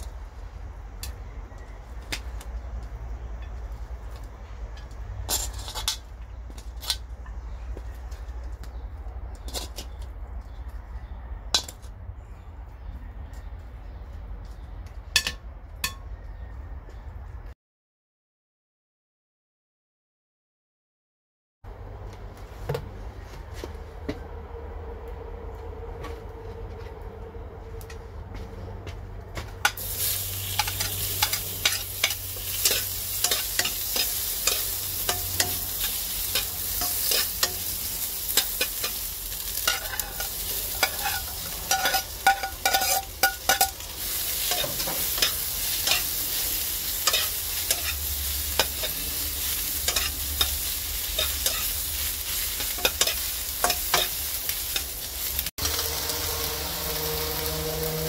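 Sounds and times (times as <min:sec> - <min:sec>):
metal spoon scraping a wok: 0:04.8 - 0:07.1, 0:09.4 - 0:10.0, 0:29.6 - 0:58.0
vegetables sizzling in hot oil: 0:29.7 - 0:58.0.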